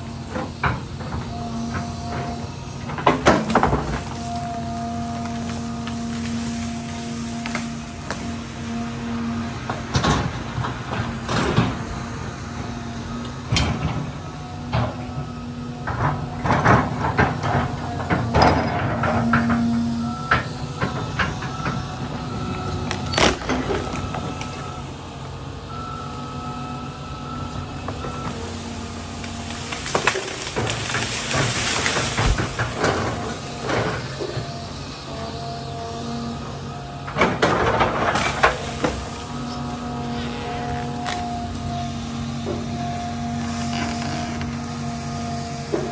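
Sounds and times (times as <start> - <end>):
branches cracking and crunching: 0.0 - 25.0, 27.5 - 45.9
excavator engine hum: 0.0 - 45.9
branches crashing down: 27.9 - 35.5, 37.1 - 45.9.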